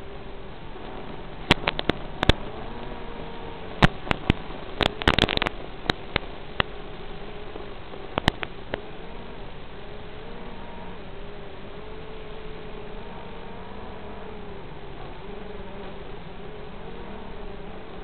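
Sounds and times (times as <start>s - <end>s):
sharp crackling pops: 0.0s - 10.1s
radio hiss with wavering tone: 0.0s - 18.0s.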